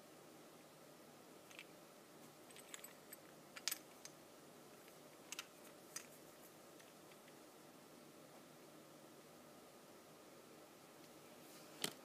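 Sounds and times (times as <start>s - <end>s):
padlock clicking and rattling: 2.5s - 4.2s.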